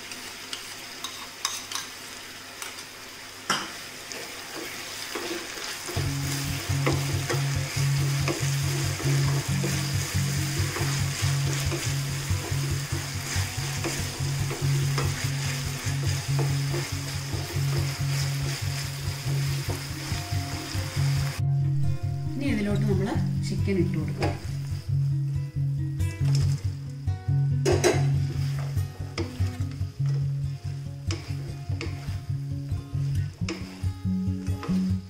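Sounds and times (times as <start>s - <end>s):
vegetables sizzling in a wok: 0.0s - 35.0s
spatula scraping a pan: 4.6s - 19.9s, 27.8s - 32.3s, 33.0s - 34.0s
background music with low beat: 5.9s - 35.0s.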